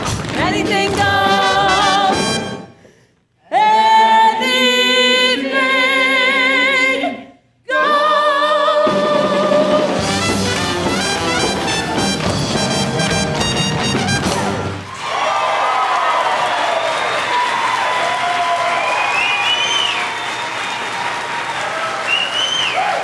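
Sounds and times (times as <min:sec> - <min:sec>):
chorus singing show tune: 0:00.3 - 0:02.7, 0:03.4 - 0:13.0
brass-led pit band: 0:01.0 - 0:02.8, 0:08.9 - 0:15.0.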